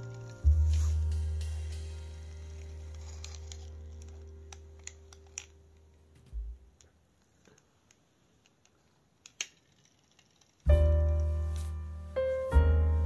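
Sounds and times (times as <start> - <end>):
plastic toy car clicking on floor: 2.2 - 6.0, 6.8 - 10.7.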